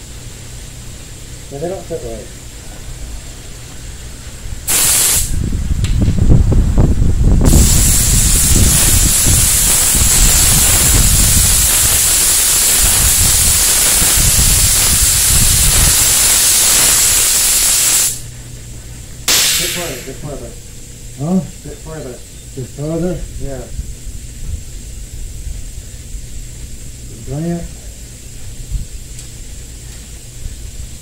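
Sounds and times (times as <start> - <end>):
spray gun hissing: 4.6 - 5.4, 7.4 - 18.3, 19.2 - 20.3.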